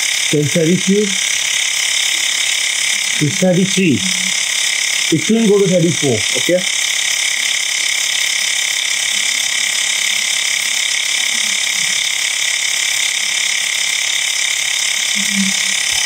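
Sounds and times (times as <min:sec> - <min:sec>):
air compressor buzzing: 0:00.0 - 0:16.0.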